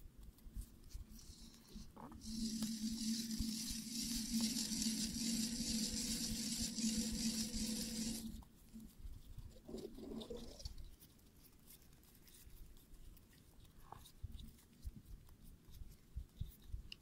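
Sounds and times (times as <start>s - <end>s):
small motor humming: 2.1s - 8.4s.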